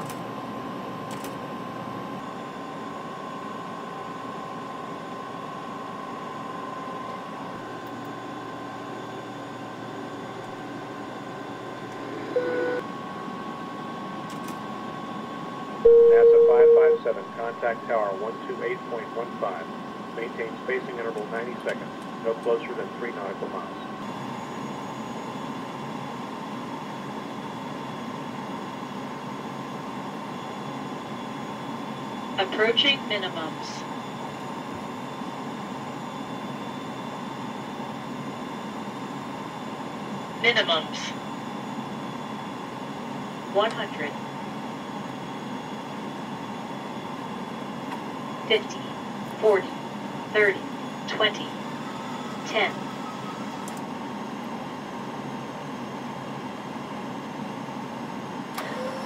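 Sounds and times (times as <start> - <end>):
short electronic beep: 15.8 - 17.0
faint steady tones: 15.8 - 19.4.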